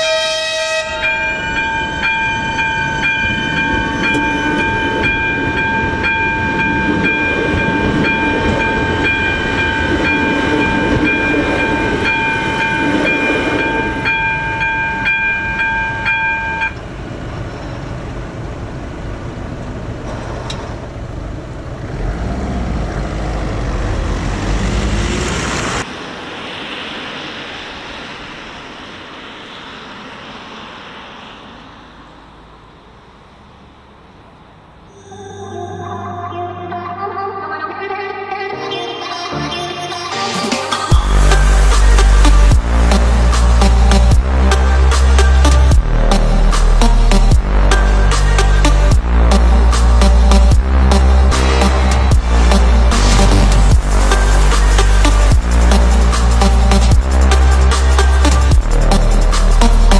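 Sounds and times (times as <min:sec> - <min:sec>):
train horn blast: 0:00.0 - 0:01.2
train passing: 0:00.0 - 0:39.3, 0:39.9 - 0:59.9
level crossing bell ringing: 0:00.8 - 0:16.8
heavy low rumble: 0:22.6 - 0:37.6, 0:40.9 - 0:59.9.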